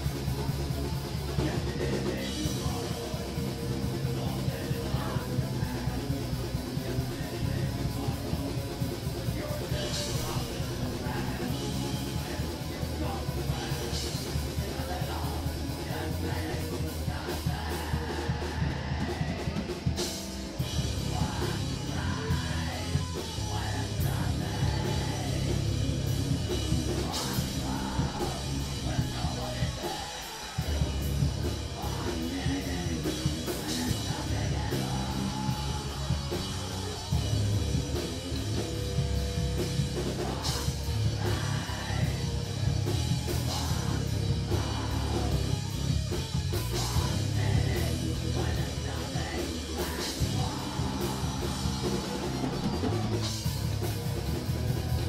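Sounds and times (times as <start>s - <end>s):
person singing into microphone: 0.0s - 38.1s, 39.8s - 45.8s, 46.5s - 53.3s
drum kit with crashing cymbals: 0.0s - 55.0s
electric guitars: 0.0s - 55.0s.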